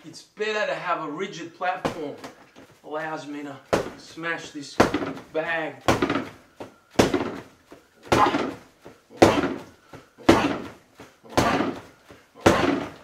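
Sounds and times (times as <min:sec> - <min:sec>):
fists hitting punching bag: 0:01.8 - 0:02.4, 0:03.7 - 0:04.2, 0:04.8 - 0:13.0.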